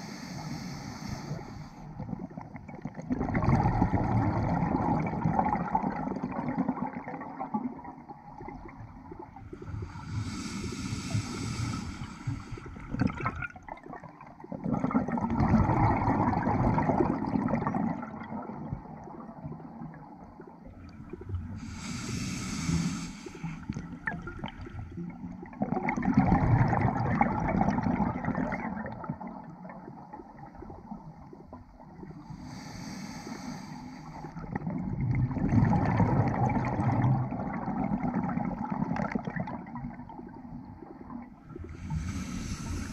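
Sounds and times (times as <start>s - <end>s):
regulator hissing inhale: 0.0s - 1.9s, 9.8s - 12.8s, 21.6s - 23.8s, 32.2s - 34.4s, 41.7s - 42.9s
gurgling exhaled bubbles: 2.0s - 23.0s, 23.6s - 32.2s, 34.3s - 42.9s.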